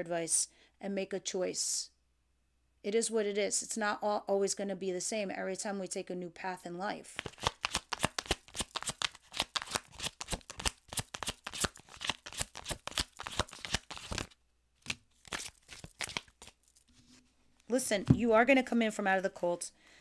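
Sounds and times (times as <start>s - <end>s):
cards being shuffled: 7.1s - 17.2s.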